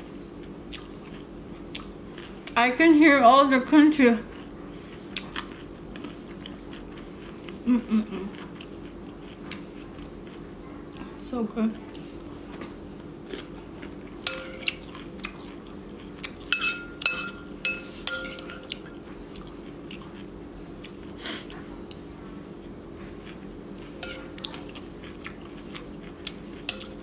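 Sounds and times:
steady low hum: 0:00.0 - 0:27.0
chewing: 0:00.4 - 0:02.6, 0:04.3 - 0:11.1, 0:11.9 - 0:16.5, 0:18.4 - 0:22.1, 0:23.0 - 0:27.0.

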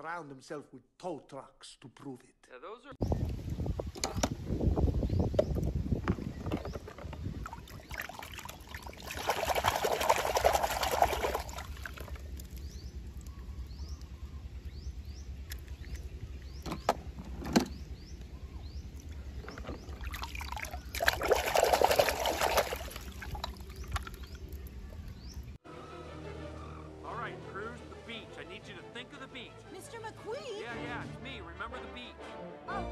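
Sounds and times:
muddy water sloshing in plastic tub: 0:05.5 - 0:14.1, 0:15.4 - 0:25.4.

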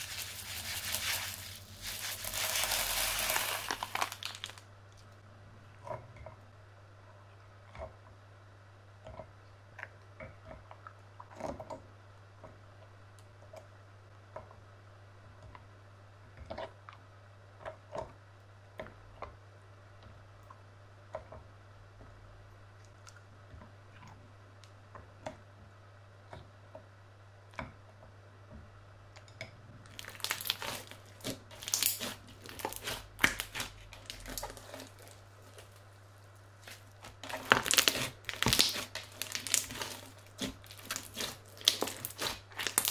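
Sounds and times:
slime crackling and popping: 0:00.0 - 0:04.7, 0:29.9 - 0:42.9.

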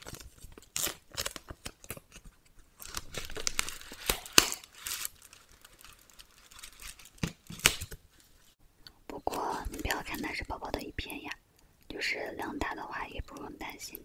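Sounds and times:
wrapper snapping: 0:00.0 - 0:08.0
plastic wrapper crinkling: 0:00.0 - 0:08.6.

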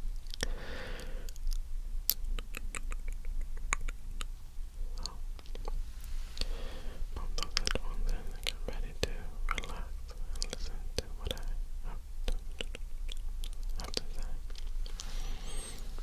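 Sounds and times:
wet mouth clicks and lip smacks: 0:01.3 - 0:05.8, 0:07.3 - 0:11.5, 0:12.2 - 0:15.1
wordless whispering: 0:06.1 - 0:12.5, 0:13.7 - 0:16.0.

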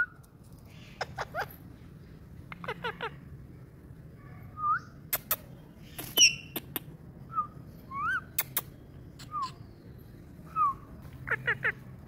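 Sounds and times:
parakeet chirping: 0:05.8 - 0:06.6
parakeet clicks: 0:08.4 - 0:08.7.

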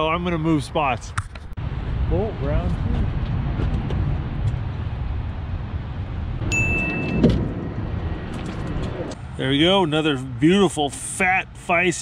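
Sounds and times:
steady low rumble: 0:00.2 - 0:11.2
short electronic beep: 0:06.5 - 0:07.4.

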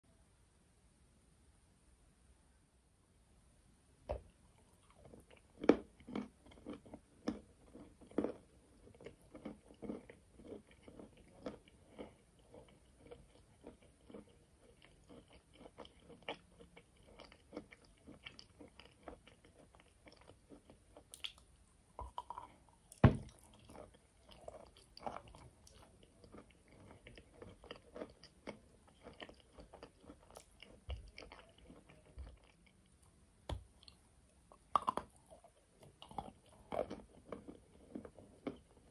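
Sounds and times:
close-up biting and chewing: 0:04.1 - 0:34.0, 0:34.6 - 0:38.9.

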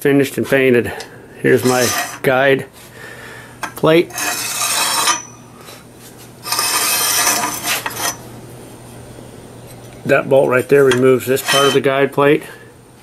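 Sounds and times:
metal scraping on metal: 0:01.5 - 0:02.5, 0:03.6 - 0:05.8, 0:06.4 - 0:08.3, 0:10.6 - 0:12.0.

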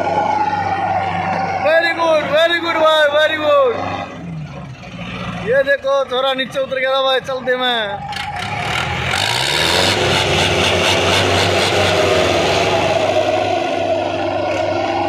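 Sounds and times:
diesel tractor engine revving: 0:00.0 - 0:15.0.

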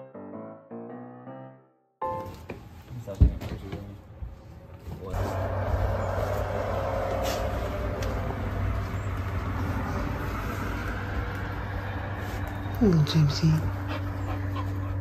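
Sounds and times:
machine humming: 0:05.2 - 0:15.0.

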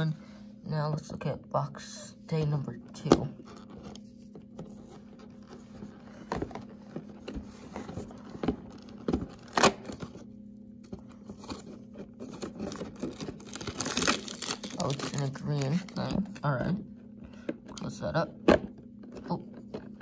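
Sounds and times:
faint steady hum: 0:00.0 - 0:20.0
cardboard tearing: 0:07.8 - 0:10.2, 0:11.4 - 0:15.8.

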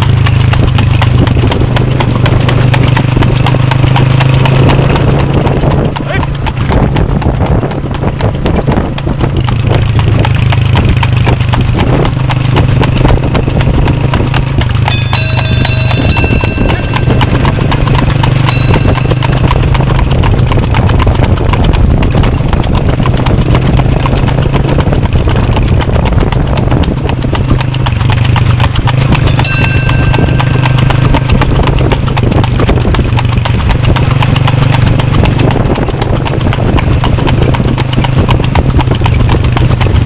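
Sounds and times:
horse hooves clip-clopping on pavement: 0:00.0 - 0:40.0
brief high tone: 0:14.9 - 0:17.6, 0:29.4 - 0:31.4.

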